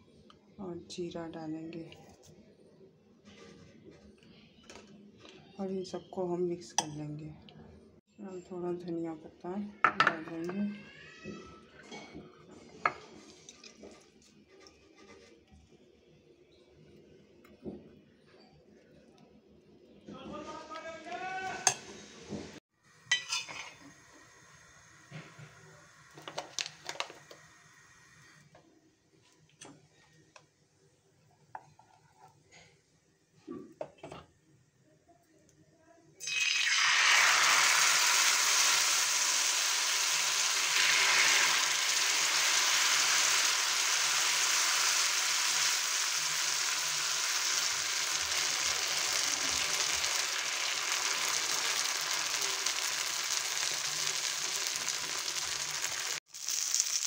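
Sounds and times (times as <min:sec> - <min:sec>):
batter sizzling in hot oil: 0:22.9 - 0:28.5, 0:36.2 - 0:57.0
metal spoon scraping steel bowl: 0:23.1 - 0:23.8.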